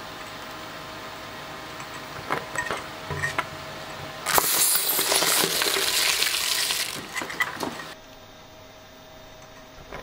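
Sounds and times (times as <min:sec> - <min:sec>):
shredder tearing rubber ball: 0:04.2 - 0:07.8.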